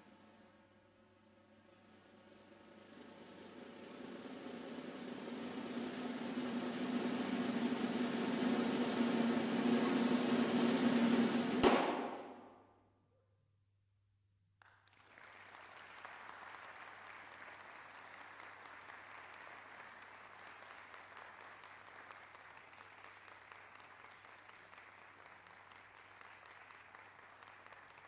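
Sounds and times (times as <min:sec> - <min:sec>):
audience applause: 0:14.6 - 0:28.0.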